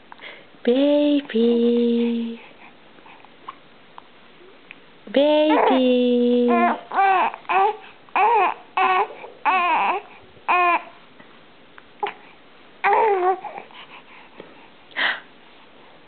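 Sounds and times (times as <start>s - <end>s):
infant cooing and babbling: 5.4s - 11.0s, 12.8s - 13.7s.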